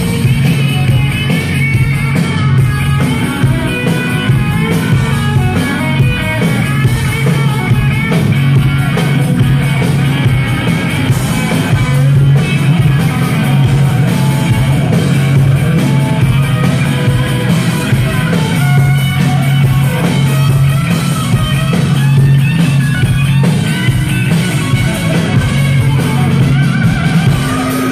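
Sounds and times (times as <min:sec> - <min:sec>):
electric guitar lead lines: 0:00.0 - 0:27.9
live hard rock band: 0:00.0 - 0:27.9.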